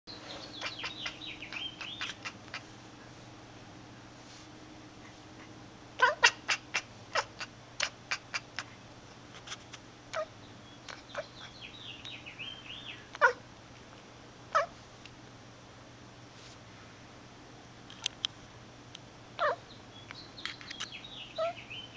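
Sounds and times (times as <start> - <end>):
cat chirping and chattering: 0.2 - 2.7, 4.9 - 8.8, 9.4 - 11.9, 12.9 - 13.4, 14.5 - 14.8, 19.4 - 19.6, 21.3 - 21.7.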